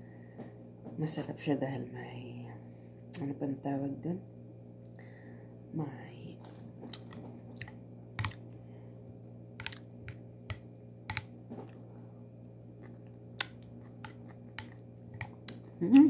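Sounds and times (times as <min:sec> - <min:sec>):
low hum: 0:00.0 - 0:16.0
spoon clicks and mouth smacks: 0:12.8 - 0:15.7.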